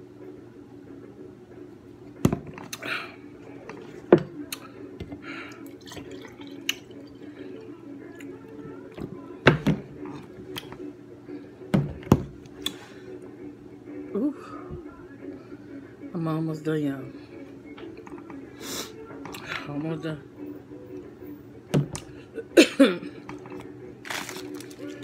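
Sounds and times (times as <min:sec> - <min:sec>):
juice pouring into a glass: 0:05.6 - 0:07.8.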